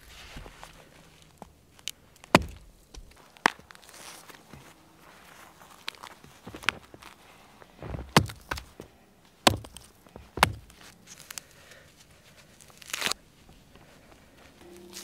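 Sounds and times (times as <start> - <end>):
frozen carcass cracking: 1.7 - 4.7, 7.8 - 8.8, 9.4 - 11.6, 12.6 - 13.2
frozen fur ripping: 3.6 - 7.2, 12.4 - 13.2.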